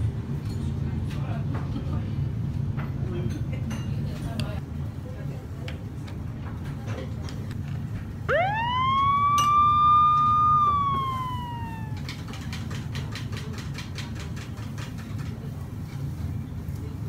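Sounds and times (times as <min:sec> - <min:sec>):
low hum: 0:08.3 - 0:12.1
whistle-like tone: 0:08.3 - 0:12.1.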